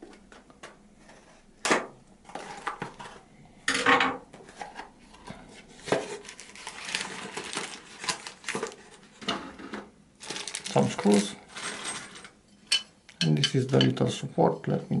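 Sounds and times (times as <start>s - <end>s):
rustling cardboard and paper: 2.2s - 3.2s, 4.3s - 9.2s, 10.2s - 12.2s.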